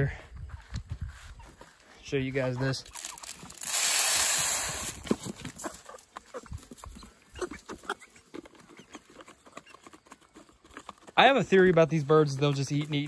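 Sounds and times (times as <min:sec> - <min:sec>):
chickens clucking: 0:02.4 - 0:03.7, 0:05.1 - 0:11.1
chickens pecking: 0:02.4 - 0:13.0
feed poured into plastic feeder: 0:03.0 - 0:05.0.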